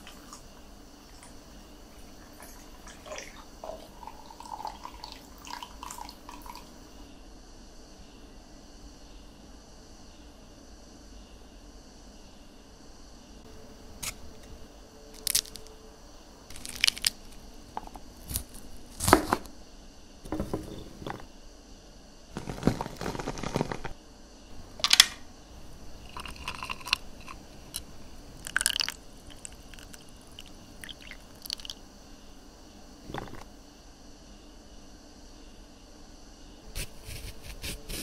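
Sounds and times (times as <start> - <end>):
fruit crushed in a glass: 15.2 - 15.7, 16.5 - 19.5, 22.4 - 23.9, 26.0 - 31.8, 33.1 - 33.4.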